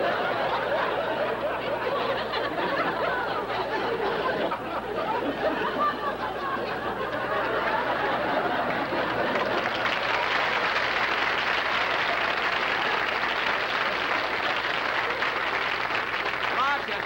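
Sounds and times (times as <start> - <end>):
studio audience applauding: 7.1 - 17.0.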